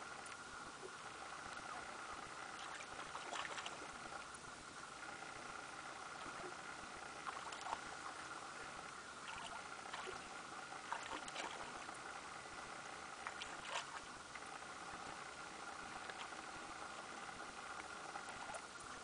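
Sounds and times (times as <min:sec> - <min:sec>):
faint steady hiss: 0:00.0 - 0:19.0
water splashing and lapping: 0:00.0 - 0:19.0
sharp water splashes: 0:09.2 - 0:11.9, 0:13.3 - 0:14.2.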